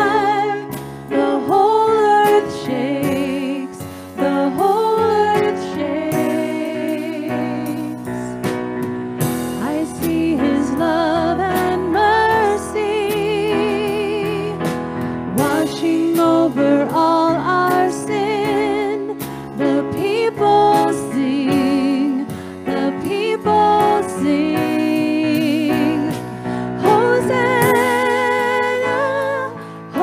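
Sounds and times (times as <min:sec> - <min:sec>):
women singing: 0:00.0 - 0:08.3, 0:09.6 - 0:14.6, 0:15.3 - 0:30.0
electronic keyboard: 0:00.0 - 0:30.0
drum kit cymbal and drums: 0:07.7 - 0:10.9.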